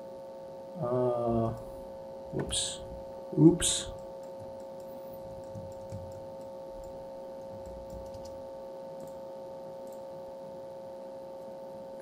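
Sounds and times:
electrical hum: 0.0s - 12.0s
computer mouse clicks: 4.0s - 8.4s, 9.0s - 9.2s, 9.8s - 10.0s.

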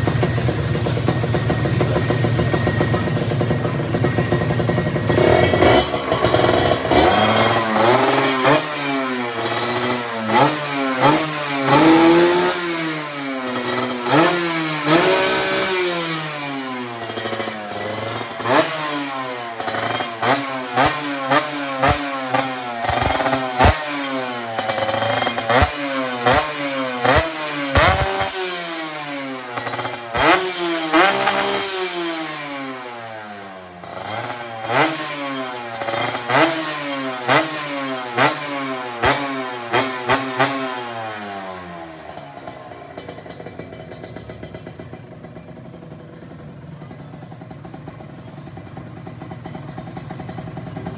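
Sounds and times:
exhaust cracks: 0.0s - 10.4s, 19.6s - 28.4s
motorcycle engine revving: 0.0s - 50.9s.

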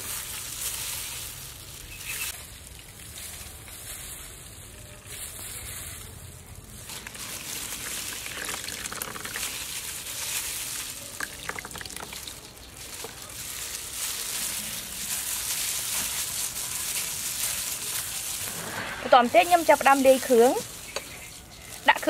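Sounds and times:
plastic bags crinkling: 0.0s - 22.0s
liquid trickling and dripping into bowl: 6.9s - 10.0s, 11.1s - 13.2s.

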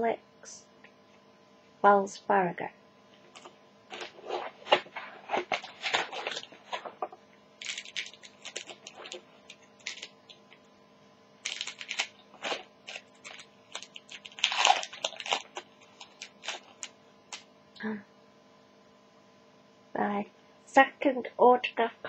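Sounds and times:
plastic wrapper crinkling: 3.3s - 10.6s, 11.4s - 17.5s
scissors cutting wrapper: 3.4s - 7.0s, 7.6s - 10.6s, 11.4s - 17.4s.

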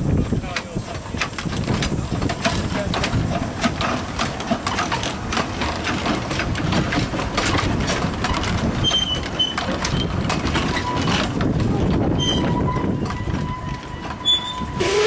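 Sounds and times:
train wheels clattering over rail joints: 0.0s - 15.0s
high wheel squeals: 8.3s - 11.3s, 12.1s - 15.0s.

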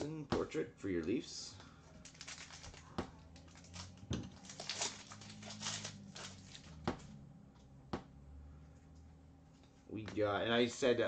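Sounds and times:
foil wrapper crinkling and tearing: 2.0s - 6.8s.

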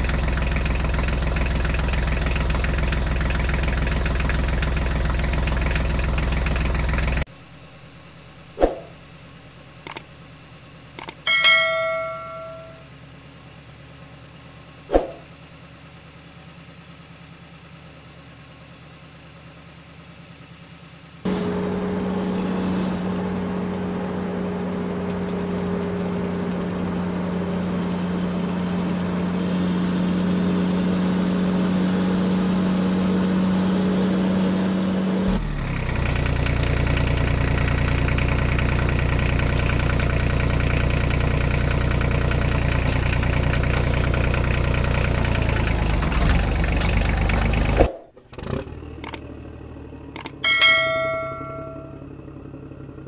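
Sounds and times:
engine idling: 0.0s - 53.0s
mouse clicks: 9.9s - 10.1s
notification ding: 11.3s - 12.8s, 50.4s - 52.1s.

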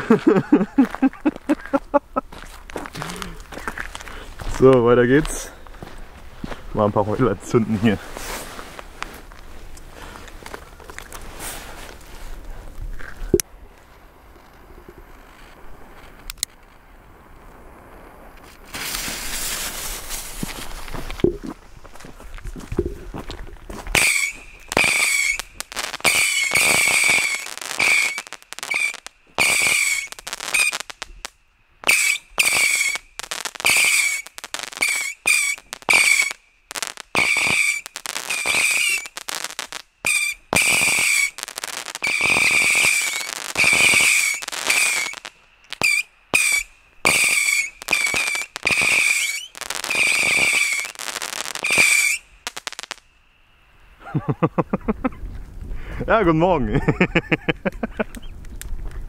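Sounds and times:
whistling fireworks: 13.7s - 20.9s, 23.8s - 55.4s.

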